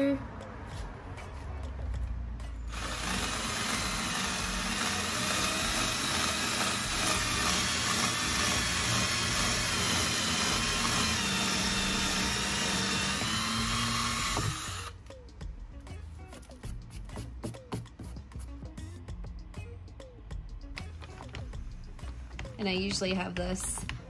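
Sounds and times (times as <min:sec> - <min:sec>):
power drill boring through plastic: 0:02.7 - 0:15.0.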